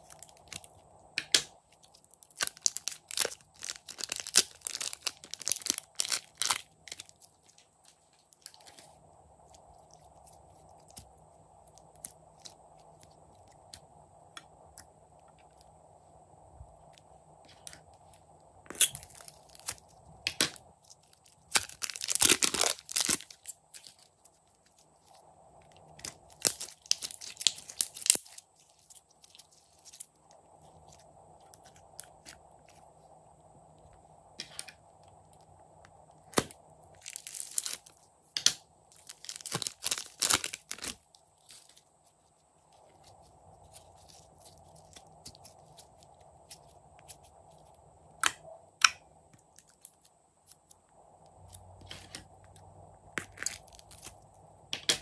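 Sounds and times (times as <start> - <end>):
sticky slime squishing: 1.3 - 13.8, 18.7 - 32.8, 36.2 - 47.3
plastic crinkling: 1.6 - 13.8, 17.5 - 32.9, 36.2 - 38.0, 38.8 - 47.8.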